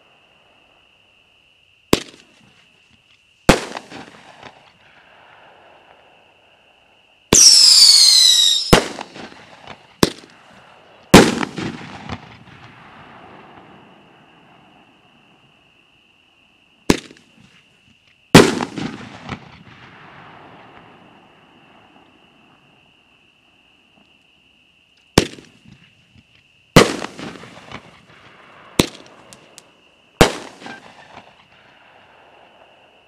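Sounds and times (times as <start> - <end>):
firework launch report: 3.4 - 6.2, 7.3 - 14.9, 18.3 - 22.8, 25.2 - 33.0
firework burst: 7.4 - 10.3, 11.2 - 13.8, 18.4 - 21.1.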